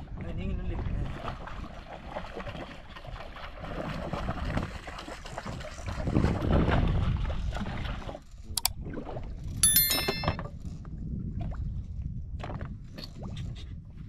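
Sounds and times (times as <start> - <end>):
wind on microphone: 5.4 - 8.9, 10.8 - 14.0.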